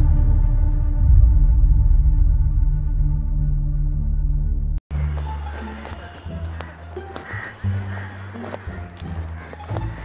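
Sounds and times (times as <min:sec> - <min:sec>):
low droning music: 0:00.0 - 0:10.0
music with sustained low notes: 0:00.0 - 0:10.0.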